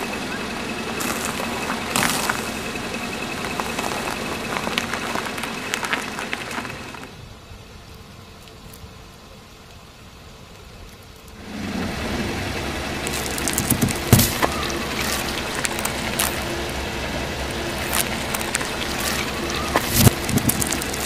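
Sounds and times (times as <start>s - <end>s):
car engine running: 0.0s - 7.2s, 11.4s - 21.0s
tyres crushing objects: 1.0s - 7.1s, 13.0s - 21.0s.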